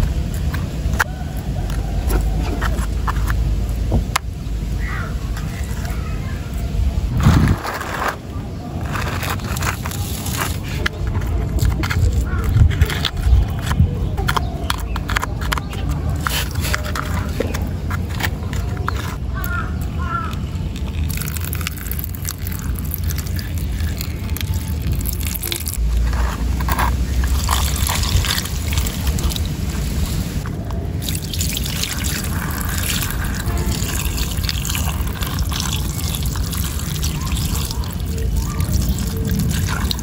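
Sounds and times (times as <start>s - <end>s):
water splashing onto plastic toy: 30.4s - 40.0s.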